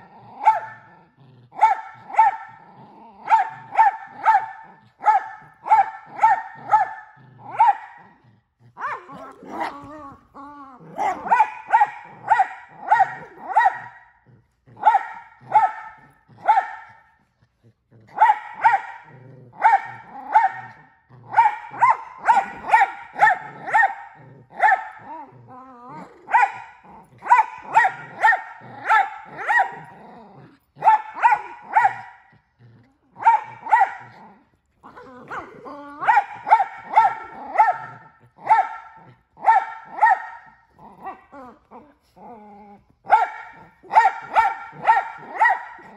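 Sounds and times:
dog growling: 0.0s - 45.9s
dog barking: 0.4s - 1.0s, 1.6s - 2.6s, 3.2s - 8.1s, 8.8s - 9.9s, 10.9s - 14.2s, 14.8s - 17.2s, 18.1s - 25.2s, 26.2s - 30.0s, 30.8s - 32.3s, 33.2s - 34.3s, 35.2s - 41.3s, 43.0s - 45.9s.

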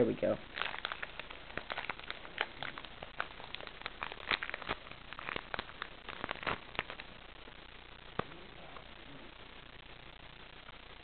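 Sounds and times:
card pack wrapper crinkling: 0.4s - 7.2s.

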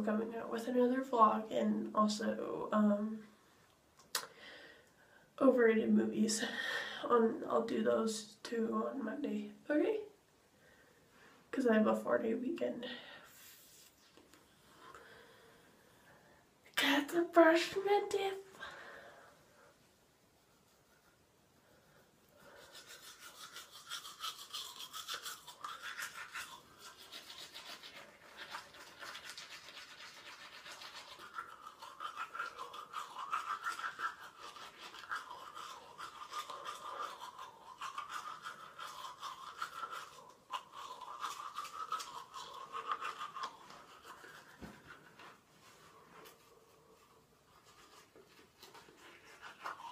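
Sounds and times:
toothbrush scrubbing teeth: 20.4s - 49.9s.

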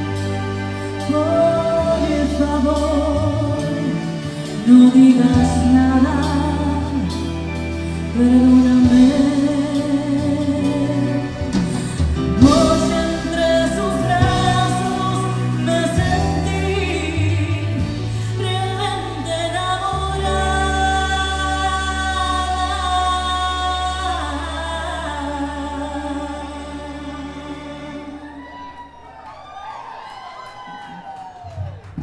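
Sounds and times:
bass guitar: 0.0s - 28.7s
woman singing: 0.0s - 28.8s
drums: 0.0s - 32.0s.

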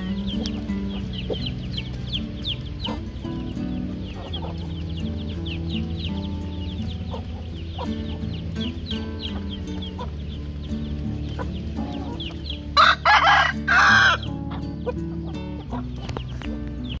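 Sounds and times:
background music: 0.0s - 17.0s
chickens clucking and chirping: 0.0s - 17.0s
rooster crowing: 12.8s - 14.3s.

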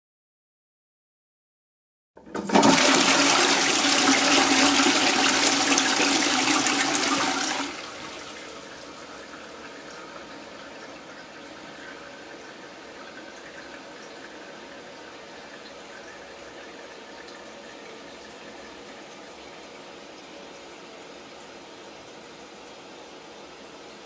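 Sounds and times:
toilet flushing: 2.2s - 21.2s.

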